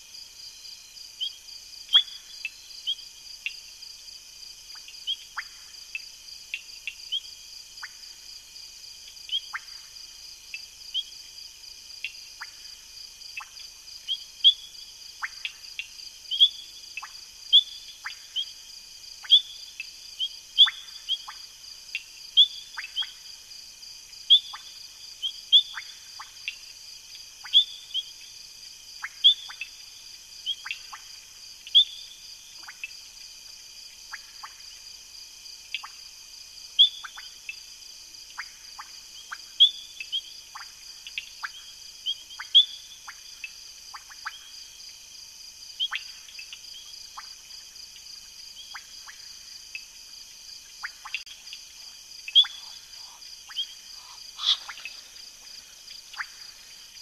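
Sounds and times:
frogs calling: 0:09.3 - 0:09.9, 0:16.3 - 0:18.6, 0:22.3 - 0:23.3, 0:24.3 - 0:26.6, 0:27.4 - 0:28.2, 0:36.8 - 0:37.6, 0:38.4 - 0:44.6, 0:45.8 - 0:47.4, 0:48.5 - 0:49.9, 0:50.6 - 0:57.0
high insect trill: 0:46.9 - 0:57.0.

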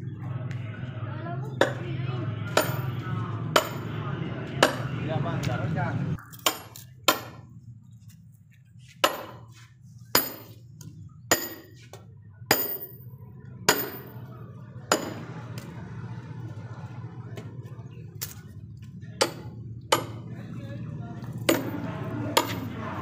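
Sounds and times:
hammer striking metal wedge: 0:02.5 - 0:02.9, 0:03.6 - 0:03.9, 0:04.6 - 0:04.8, 0:06.2 - 0:07.4, 0:09.0 - 0:09.5, 0:10.1 - 0:10.6, 0:11.3 - 0:11.8, 0:12.5 - 0:13.0, 0:13.7 - 0:14.1, 0:14.9 - 0:15.2, 0:19.2 - 0:20.2, 0:21.5 - 0:21.8, 0:22.4 - 0:22.7.

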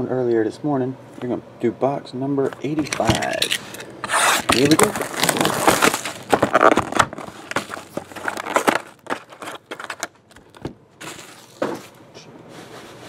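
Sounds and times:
shrink wrap crinkling and tearing: 0:02.8 - 0:11.6.

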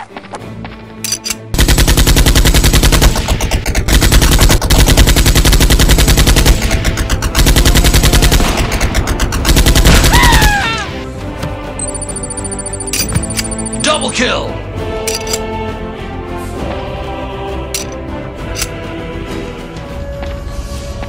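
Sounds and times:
automatic gunfire: 0:01.6 - 0:10.5.

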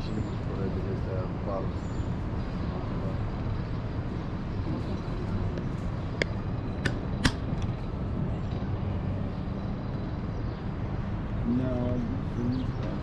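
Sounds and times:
low rumble of traffic: 0:00.0 - 0:13.0
sharp clicks or knocks: 0:06.2 - 0:07.7.

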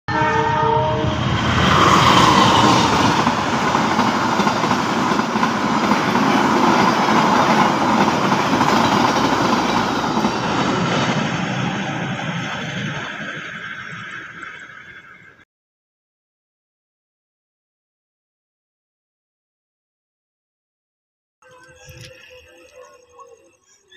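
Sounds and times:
locomotive horn: 0:00.1 - 0:01.6
train rushing past: 0:00.1 - 0:14.9.

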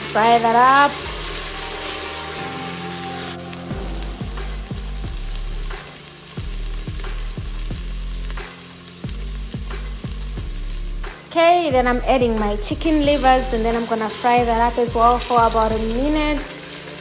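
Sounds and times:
vegetables sizzling in a pot: 0:00.0 - 0:17.0
low regular thudding beat: 0:01.0 - 0:16.5.

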